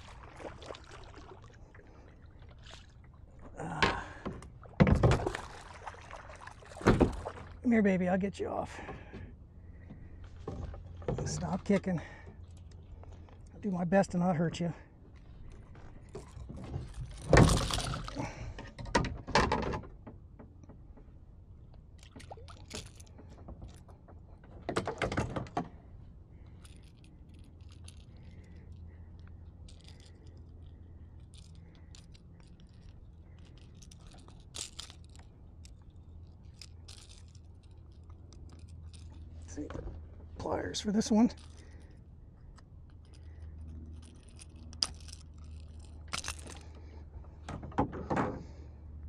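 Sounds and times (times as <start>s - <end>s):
fish kicking and scuffling: 15.2s - 18.6s
hooks and metal gripper rattling: 22.0s - 23.9s, 26.4s - 47.0s.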